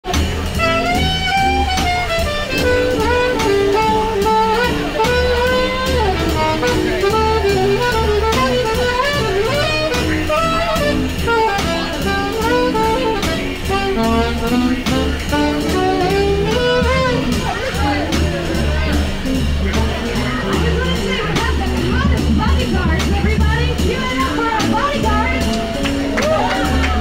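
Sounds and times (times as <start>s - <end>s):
jazz music: 0.0s - 27.0s.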